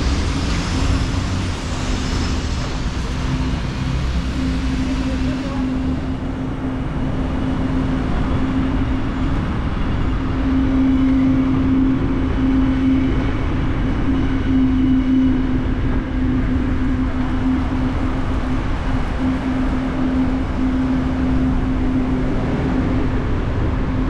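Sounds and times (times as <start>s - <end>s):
car driving road noise: 0.0s - 10.4s
low hum: 0.0s - 24.0s.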